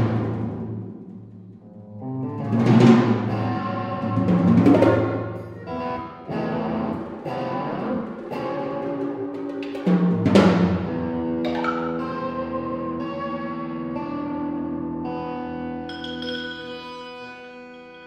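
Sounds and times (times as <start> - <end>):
percussion: 0.0 - 12.8, 15.8 - 18.0
accordion and guitar tones: 3.3 - 9.8, 10.9 - 15.9.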